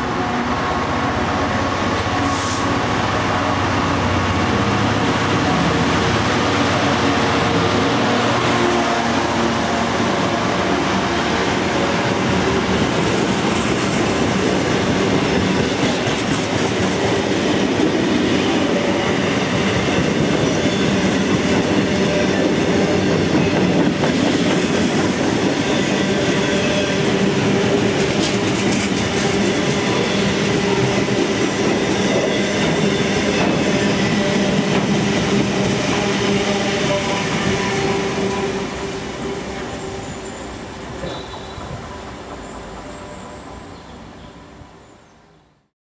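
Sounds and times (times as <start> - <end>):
freight train wheels clattering: 13.1 - 18.4, 19.3 - 38.4.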